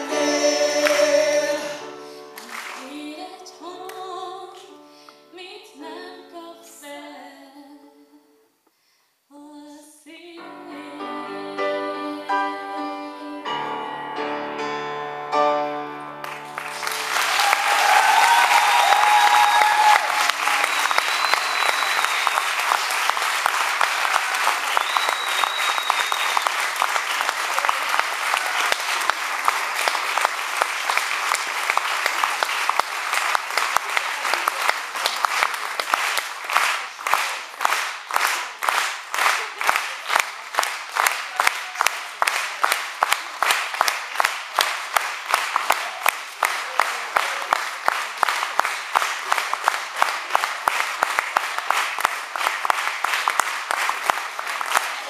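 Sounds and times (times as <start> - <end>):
audience applauding: 0.0 - 3.0, 16.2 - 55.0.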